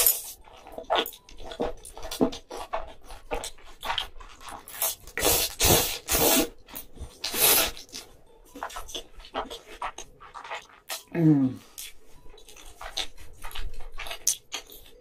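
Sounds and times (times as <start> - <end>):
wet chewing smacks and clicks: 0.5 - 5.6, 6.7 - 15.0
slurping noodles: 3.9 - 6.6, 7.2 - 8.0.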